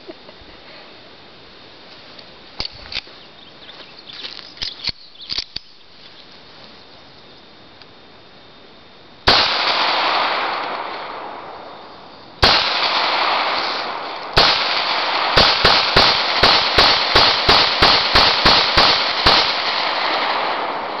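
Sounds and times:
gunshots: 9.3s - 11.8s, 12.4s - 21.0s.

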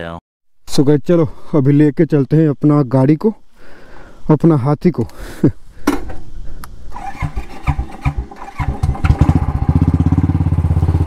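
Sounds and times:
motorcycle engine starting and idling: 6.9s - 11.0s.

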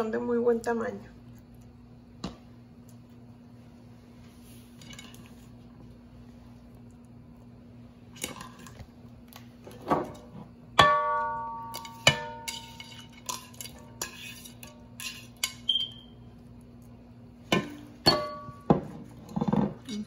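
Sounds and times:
faint steady hum: 0.0s - 20.0s
ceramic plate clinking on pot: 17.5s - 19.8s.

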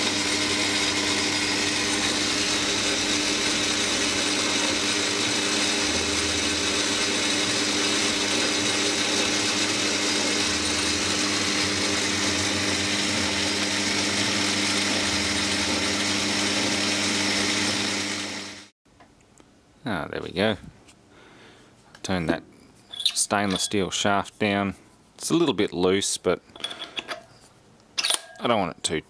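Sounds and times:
metal lathe cutting steel: 0.0s - 18.7s.

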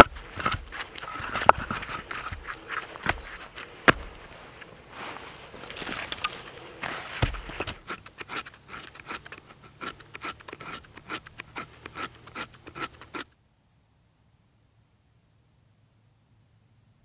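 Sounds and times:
knife scraping wood shavings: 0.0s - 13.3s.

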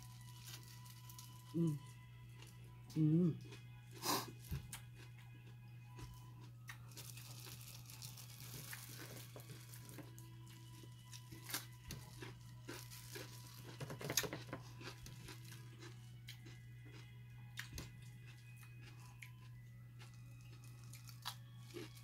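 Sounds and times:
plastic gloves crinkling: 0.0s - 1.8s, 6.9s - 14.1s
crisp cucumber bites and chewing: 11.1s - 22.0s.

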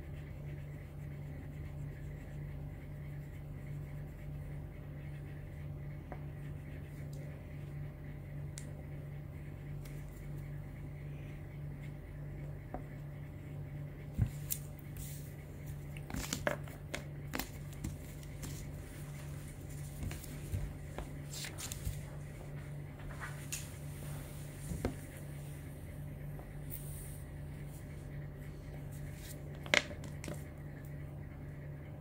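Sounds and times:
steady low hum: 0.0s - 32.0s
crayon on paper taps and scrapes: 29.2s - 30.5s.

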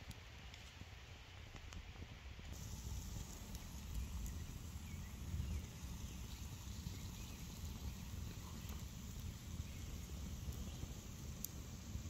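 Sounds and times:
campfire crackling: 2.5s - 12.0s
low fire rumble: 2.5s - 12.0s.

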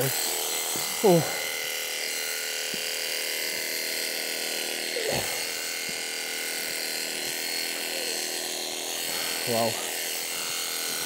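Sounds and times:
electric shearing handpiece whine: 0.0s - 11.0s.

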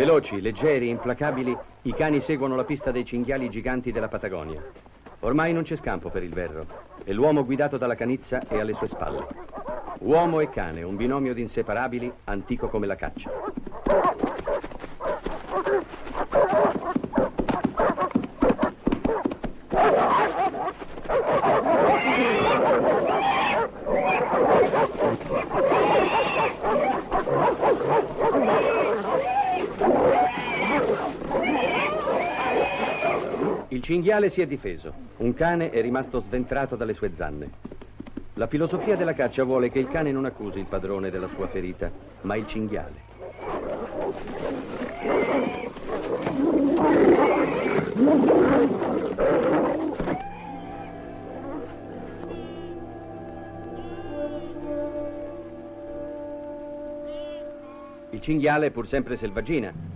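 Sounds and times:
dogs barking and yelping: 0.0s - 3.5s, 4.6s - 7.3s, 8.4s - 11.2s, 12.0s - 33.7s, 43.1s - 55.6s
boar squealing: 8.4s - 33.7s, 38.5s - 40.5s, 42.4s - 56.0s, 57.0s - 59.9s.

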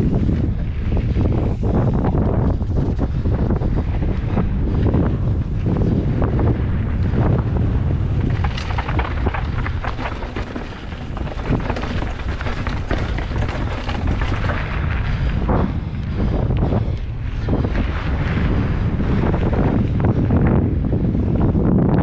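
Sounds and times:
wind buffeting microphone: 0.0s - 22.0s
mountain bike rattling over rocks: 6.8s - 15.3s.

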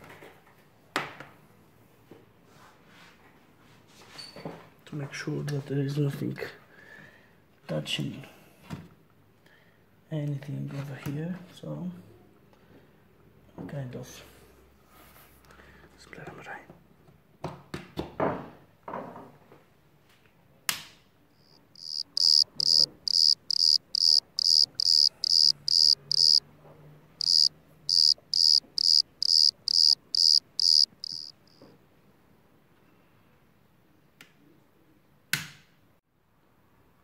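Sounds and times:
short high-pitched electronic beeps: 21.8s - 26.4s, 27.2s - 31.6s.

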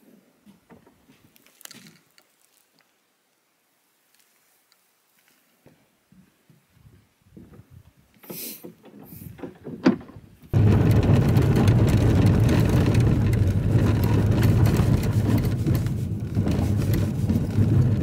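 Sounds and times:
faint rustling: 10.4s - 18.0s
car cabin road rumble: 10.5s - 18.0s.

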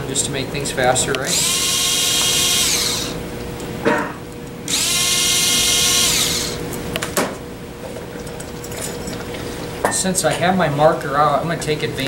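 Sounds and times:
cordless screwdriver spinning: 1.2s - 3.2s, 4.7s - 6.6s.

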